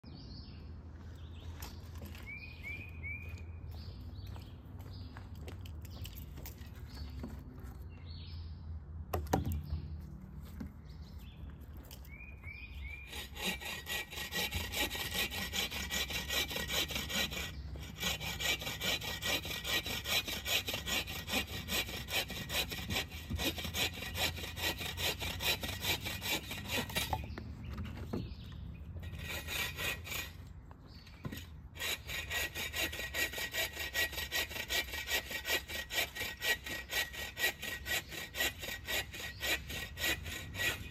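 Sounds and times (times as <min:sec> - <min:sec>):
bow saw cutting branch: 0:12.9 - 0:28.2, 0:29.0 - 0:30.4, 0:31.2 - 0:40.9.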